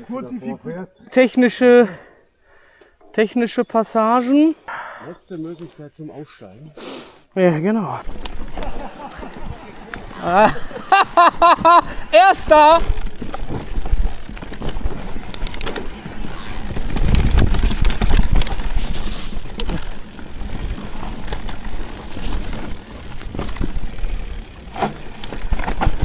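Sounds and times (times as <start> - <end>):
bike clattering over bumps: 8.0 - 26.0
wind and tyre rumble on mic: 12.8 - 21.4.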